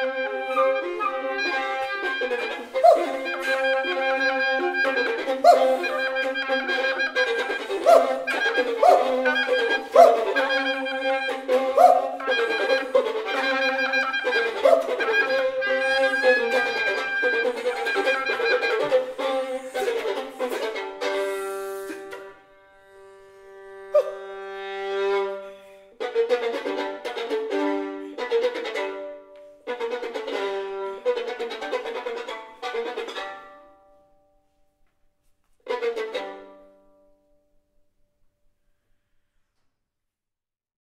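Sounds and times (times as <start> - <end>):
chamber ensemble playing: 0.0 - 29.1.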